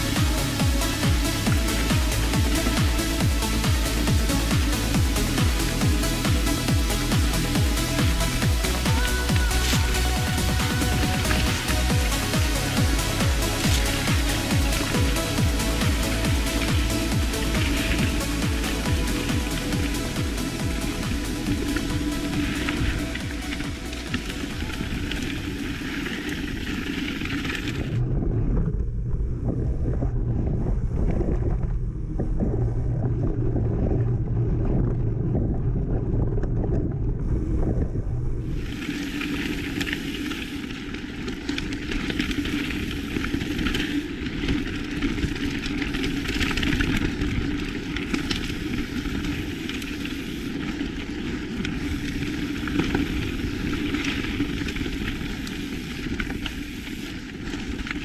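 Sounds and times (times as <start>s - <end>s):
bike rattles: 0.0s - 29.1s, 38.5s - 58.0s
bike tyre roar: 0.0s - 58.0s
wind buffeting microphone: 27.6s - 39.2s.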